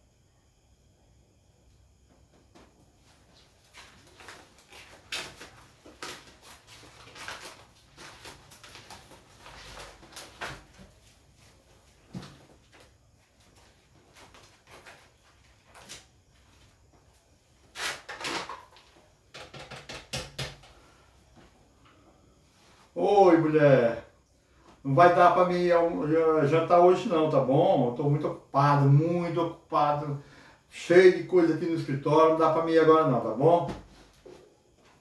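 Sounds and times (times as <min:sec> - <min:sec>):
paper handled: 0:03.7 - 0:10.9
notebook pages turning: 0:03.8 - 0:10.9.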